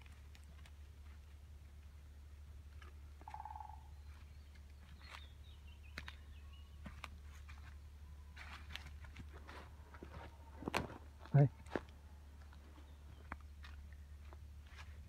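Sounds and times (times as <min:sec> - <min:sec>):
bird calling: 0:03.2 - 0:08.6.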